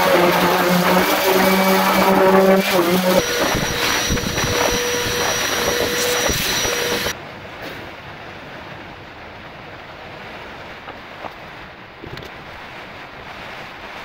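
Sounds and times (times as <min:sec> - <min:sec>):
vacuum cleaner whine: 0:00.0 - 0:07.1.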